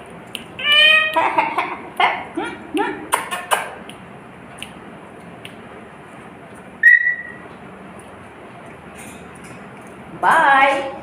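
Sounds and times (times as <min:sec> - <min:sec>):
parrot whistle: 0:00.6 - 0:01.1, 0:06.8 - 0:07.4.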